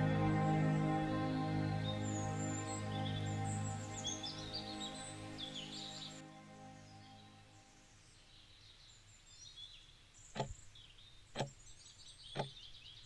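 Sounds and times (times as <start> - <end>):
faint birds chirping: 0.0 - 13.0
wall clock ticking: 10.4 - 10.6.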